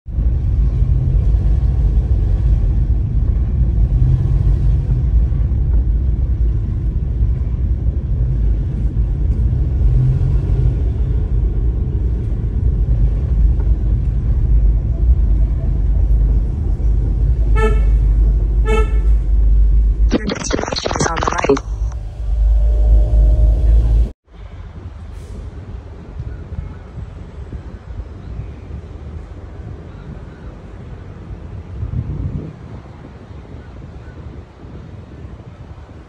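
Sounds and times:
car engine rumble and road noise: 0:00.1 - 0:36.0
car horn toots: 0:17.5 - 0:19.2.

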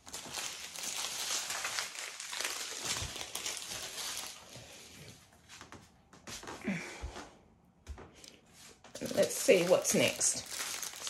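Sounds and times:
thin plastic bags crinkling: 0:00.0 - 0:04.9, 0:09.0 - 0:11.0.

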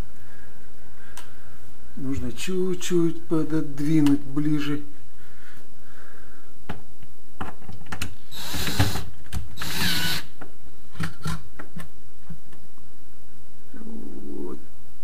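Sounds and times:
drill motor driving screws: 0:08.3 - 0:10.3.

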